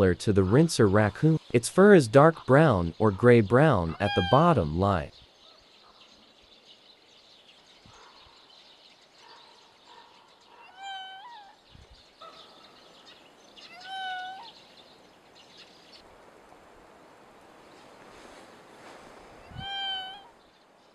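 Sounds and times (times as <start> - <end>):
raccoon dog mewing whines: 10.6 - 11.6, 13.7 - 14.5, 19.4 - 20.3.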